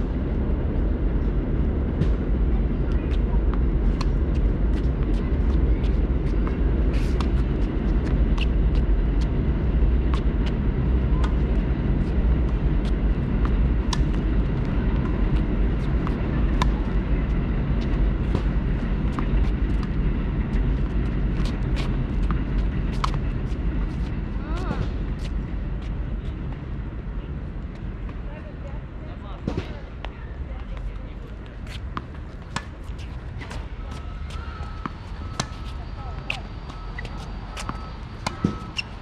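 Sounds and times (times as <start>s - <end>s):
steady low rumble: 0.0s - 39.0s
tennis balls struck with racquets: 13.9s - 16.9s, 34.3s - 38.9s.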